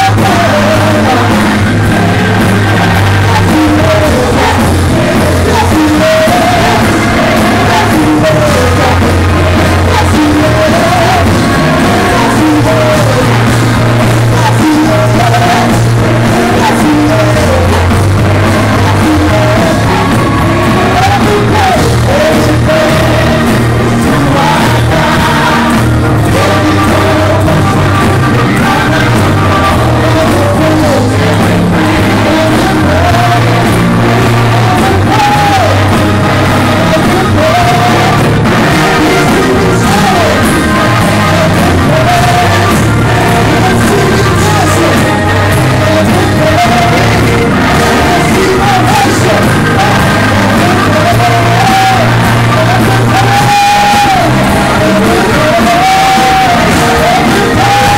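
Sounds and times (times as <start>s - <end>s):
congregation shouts and whoops: 0.0s - 57.9s
gospel choir singing: 0.0s - 57.9s
live band with bass line: 0.0s - 57.9s.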